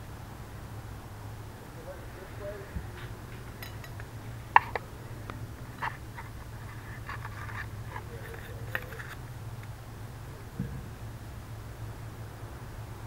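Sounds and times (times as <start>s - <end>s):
steady low hum: 0.0s - 13.0s
knife tapping and scraping: 3.4s - 4.9s.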